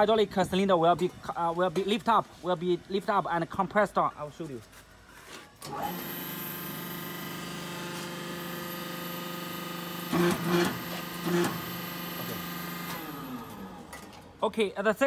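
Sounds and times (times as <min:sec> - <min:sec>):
hydraulic power unit humming: 0:05.6 - 0:14.3.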